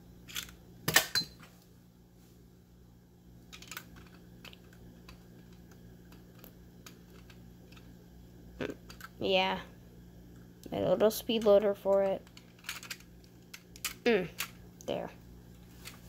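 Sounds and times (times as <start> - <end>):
plastic toy pieces clicking: 3.5 - 4.8, 11.3 - 14.6.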